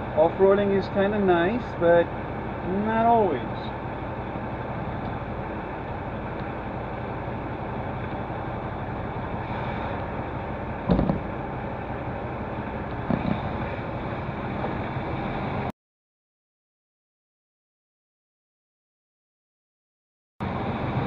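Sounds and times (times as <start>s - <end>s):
truck diesel engine running: 0.0s - 15.7s, 20.4s - 21.0s
loud thump: 10.9s - 11.3s, 13.1s - 13.5s.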